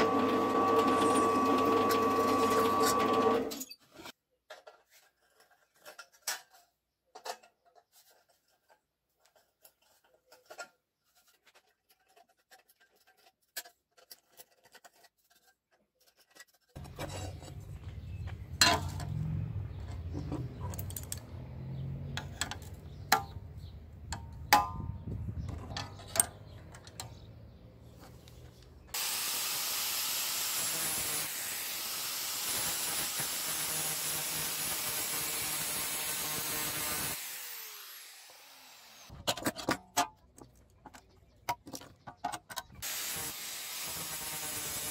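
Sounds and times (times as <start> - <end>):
metallic scrapes and clinks: 5.0 - 22.8.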